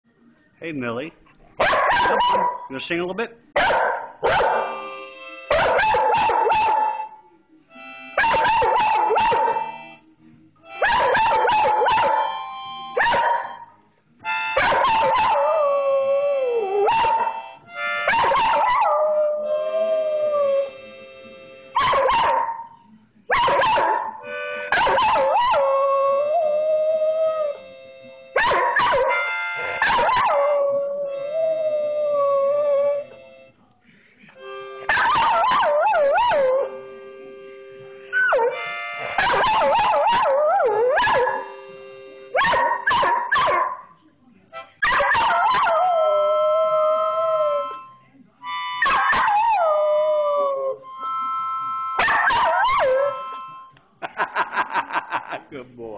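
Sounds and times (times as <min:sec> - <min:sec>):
harmonica chords: 0:02.1 - 0:22.7, 0:23.5 - 0:43.8, 0:44.4 - 0:55.9
dog howling: 0:48.8 - 0:51.0.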